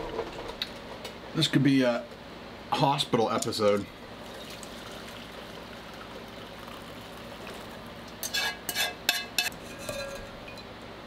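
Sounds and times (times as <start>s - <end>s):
draining liquid hiss: 4.0s - 8.1s
metal clinking against glass: 9.1s - 10.7s.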